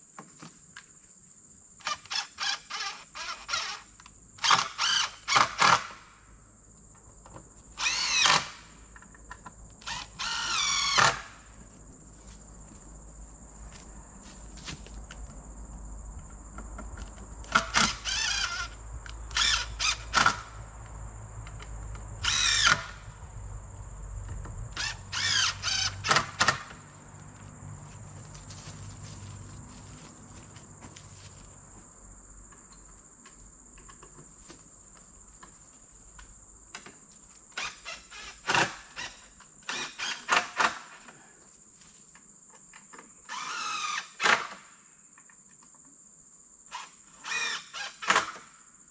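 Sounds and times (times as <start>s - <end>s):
low engine rumble: 26.6s - 32.3s.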